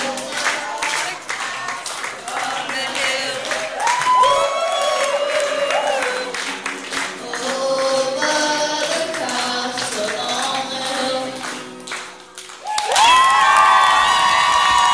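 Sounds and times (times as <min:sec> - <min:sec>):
boy singing into microphone: 0:00.0 - 0:03.7, 0:07.1 - 0:11.7
acoustic guitar strumming: 0:06.2 - 0:12.6.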